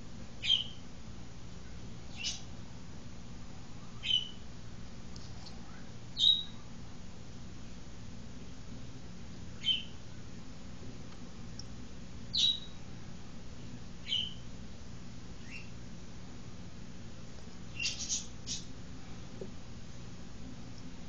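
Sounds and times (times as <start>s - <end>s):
faint low hum: 0.0s - 21.0s
bird calling sharply: 17.8s - 18.7s.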